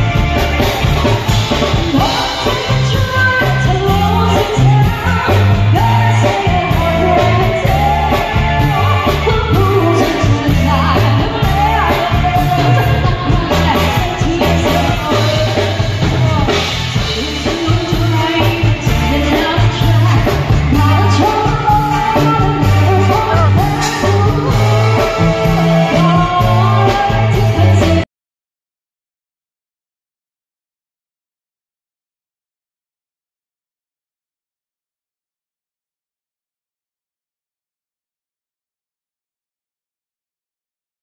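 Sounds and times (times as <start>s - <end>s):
electric guitar: 0.0s - 28.0s
stepping bass line: 0.0s - 28.0s
person singing: 0.0s - 28.1s.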